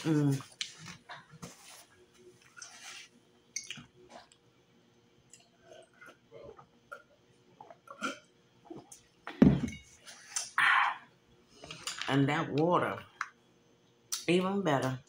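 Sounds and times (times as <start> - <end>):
glass knocking on table: 9.4 - 9.8.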